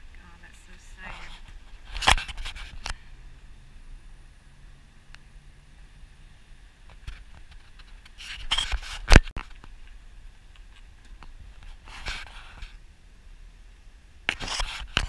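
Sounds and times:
camera handling rubbing: 0:01.2 - 0:03.0, 0:07.0 - 0:09.7.

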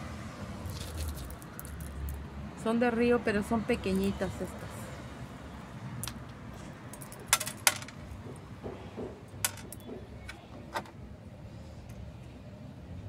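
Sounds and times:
pebbles clicking together: 0:00.7 - 0:02.2.

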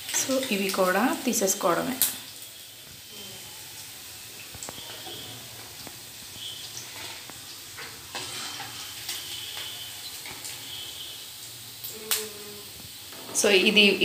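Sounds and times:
hot oil sizzling in a pan: 0:00.0 - 0:14.0.

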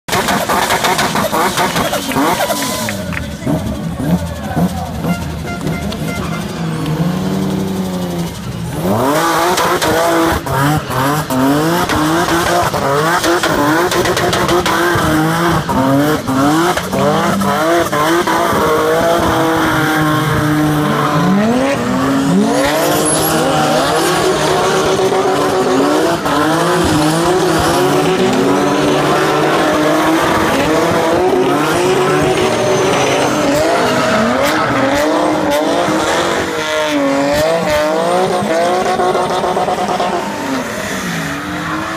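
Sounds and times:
car engines revving hard: 0:00.0 - 0:41.9
tyre screech: 0:00.1 - 0:08.4, 0:18.4 - 0:37.5.

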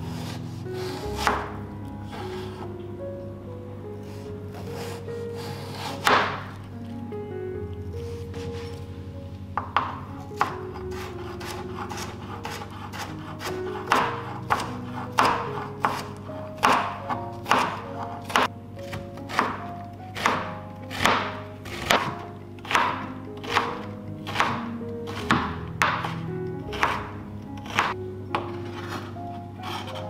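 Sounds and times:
background music: 0:00.0 - 0:30.0
knife cutting on cutting board: 0:00.1 - 0:01.5, 0:04.1 - 0:06.5, 0:10.4 - 0:19.6, 0:27.6 - 0:30.0.

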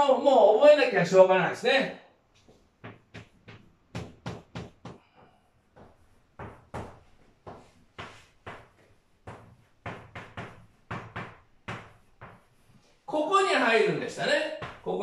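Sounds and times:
chalk tapping on blackboard: 0:02.4 - 0:13.0.

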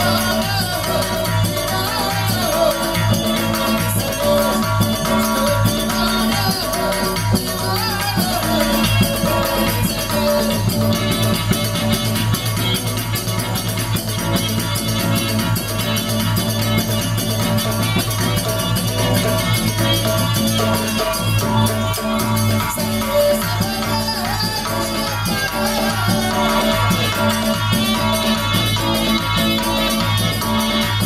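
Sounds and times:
man singing into a microphone: 0:00.0 - 0:11.4, 0:22.6 - 0:29.2
drums: 0:00.0 - 0:31.0
rattling percussion: 0:00.0 - 0:31.0.

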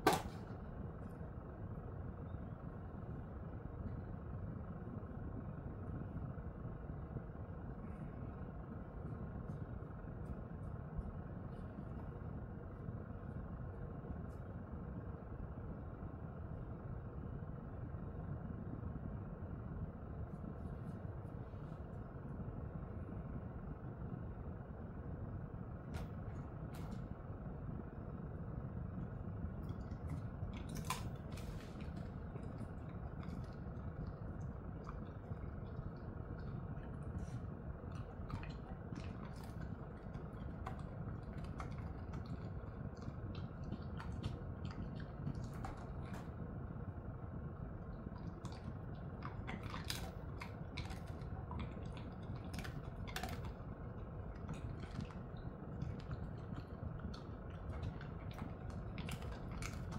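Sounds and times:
low background hum: 0:00.0 - 0:59.9
dog chewing treats: 0:29.6 - 0:46.6, 0:48.0 - 0:59.9.

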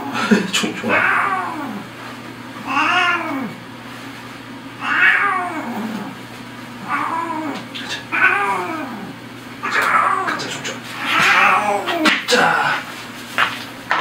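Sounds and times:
cat meowing: 0:00.9 - 0:01.9, 0:02.6 - 0:03.6, 0:04.8 - 0:06.2, 0:06.8 - 0:12.1.

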